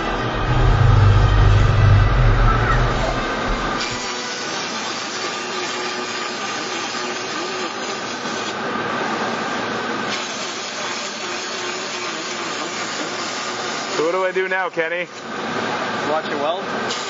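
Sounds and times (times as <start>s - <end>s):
arc welding noise: 0.0s - 15.4s, 16.0s - 17.0s.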